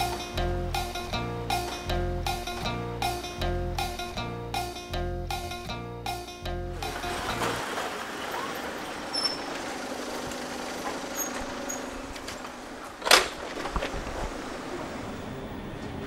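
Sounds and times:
outdoor traffic noise: 6.7 - 16.0.

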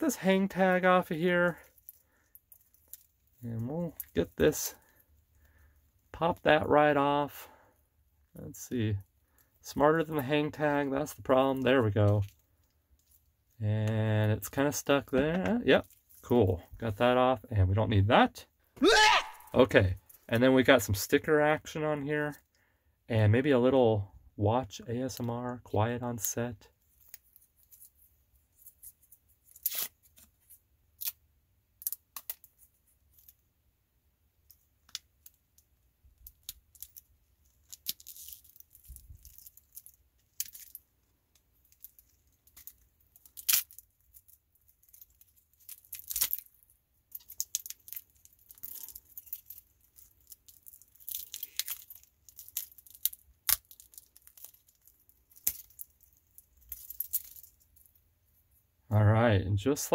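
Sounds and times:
plastic stickers peeling: 47.1 - 57.6.

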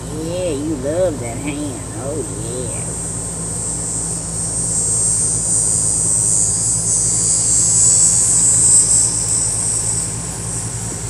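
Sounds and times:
insect chorus buzzing: 2.7 - 11.0.

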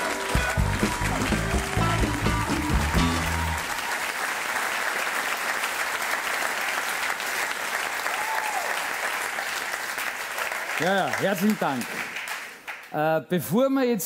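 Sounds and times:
walk-on music: 0.0 - 3.7
audience applauding: 0.0 - 13.0.

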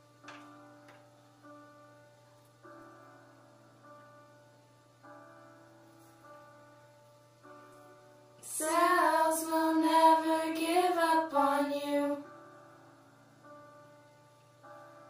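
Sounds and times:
soft keyboard chords: 0.0 - 15.0
girl singing wordless line: 8.4 - 12.3.

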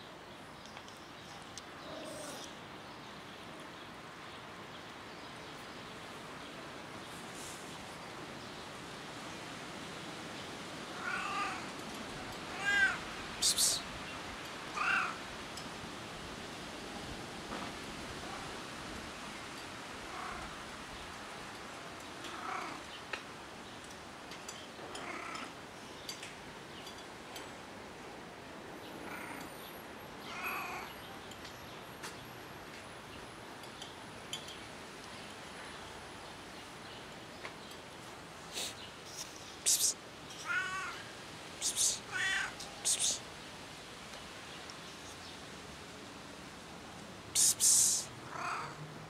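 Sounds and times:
street ambience hiss: 0.0 - 49.0
cat making soft calls: 1.8 - 2.5, 10.9 - 11.7, 12.5 - 13.9, 14.7 - 15.2, 39.6 - 41.0, 41.6 - 43.2, 47.4 - 48.8.

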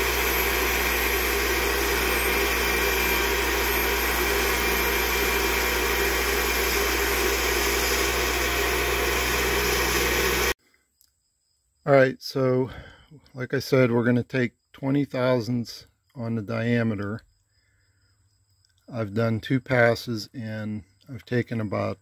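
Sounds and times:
electric motor hum: 0.0 - 10.6
grinding wheel hiss on steel: 0.0 - 10.6.

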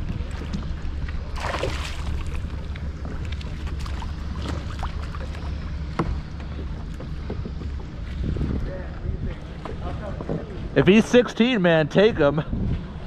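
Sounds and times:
water lapping against kayak hull: 0.0 - 8.6
wind rumbling on microphone: 0.0 - 13.0
water splash: 0.2 - 2.6.

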